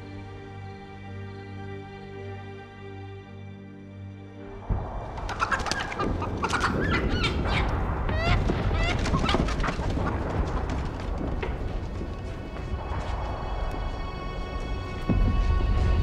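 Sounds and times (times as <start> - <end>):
music: 0.0 - 16.0
chickens clucking: 5.2 - 10.3.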